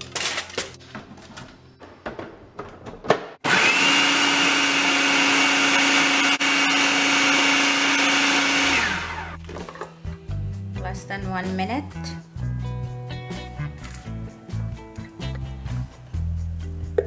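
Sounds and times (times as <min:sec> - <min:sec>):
food processor motor whining: 0:03.4 - 0:09.4.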